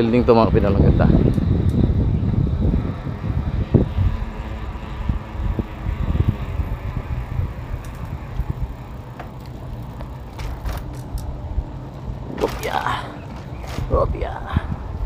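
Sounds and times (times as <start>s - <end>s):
bicycle road noise: 0.0s - 15.0s
wind rumbling on microphone: 0.0s - 15.0s
light clicks and rattles: 7.7s - 11.4s.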